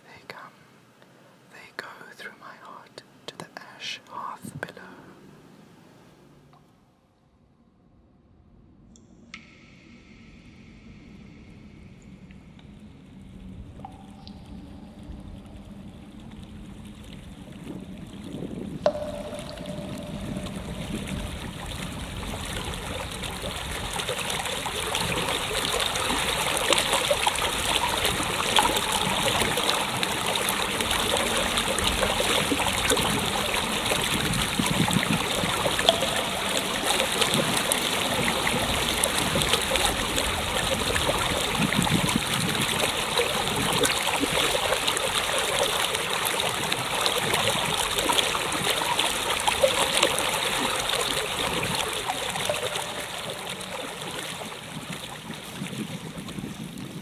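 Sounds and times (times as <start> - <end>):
running water rushing: 13.7 - 56.9.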